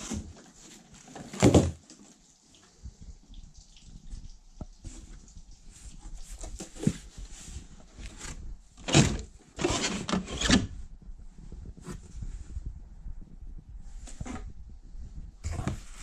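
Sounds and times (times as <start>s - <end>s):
cardboard scraping and rustling: 0.0s - 1.8s, 6.2s - 10.8s, 15.4s - 16.0s.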